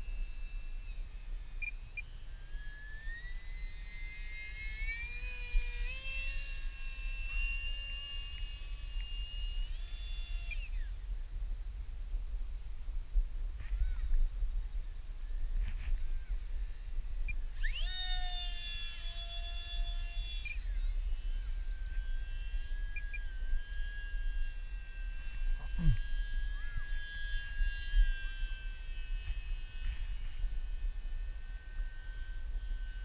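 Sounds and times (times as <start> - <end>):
electric motor and propeller whining: 0.0 - 12.4, 13.4 - 33.0
wind rumble on microphone: 0.0 - 33.0.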